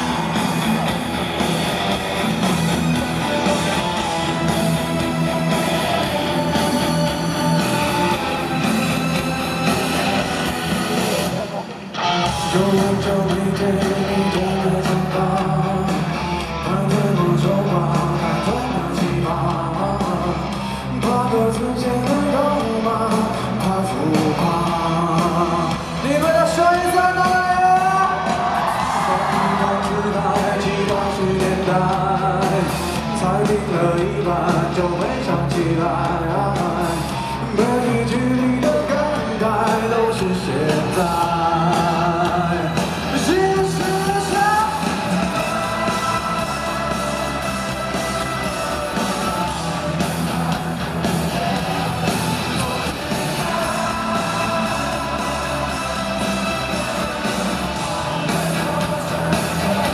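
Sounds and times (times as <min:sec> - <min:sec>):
live pop rock band: 0:00.0 - 0:59.9
man singing into microphone: 0:12.0 - 0:59.9.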